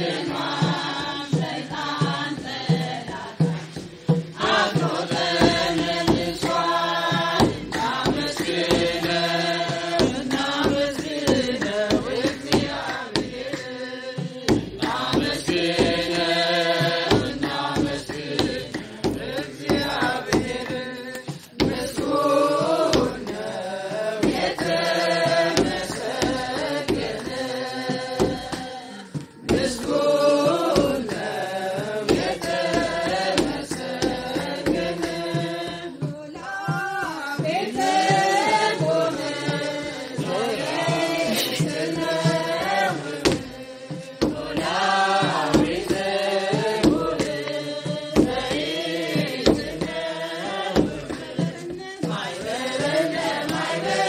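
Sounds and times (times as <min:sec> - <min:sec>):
large drum beating: 0:00.0 - 0:28.6, 0:29.2 - 0:54.0
group singing a chant-like hymn: 0:00.0 - 0:54.0.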